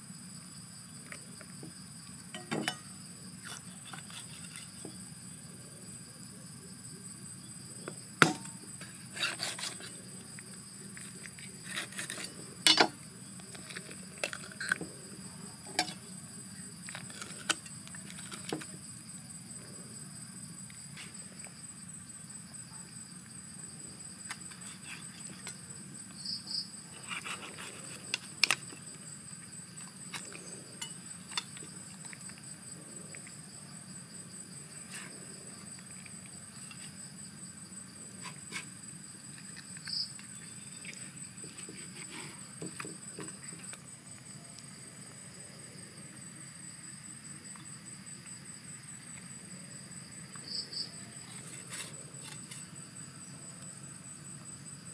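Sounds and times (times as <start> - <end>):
cleaver chopping on wooden board: 8.2 - 8.5
high-pitched insect drone: 18.4 - 54.9.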